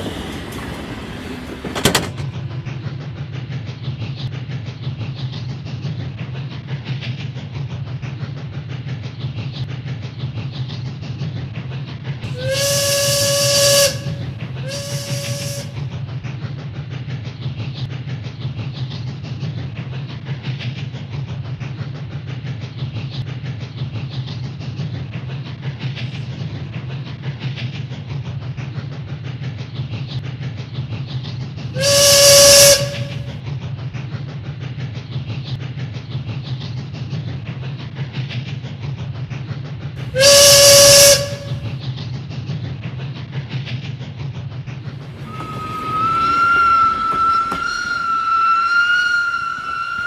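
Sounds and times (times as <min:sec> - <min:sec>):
steam train rumbling: 0:00.0 - 0:50.0
steam whistle blowing: 0:12.3 - 0:15.8, 0:31.8 - 0:33.4, 0:40.2 - 0:41.7, 0:45.2 - 0:50.0.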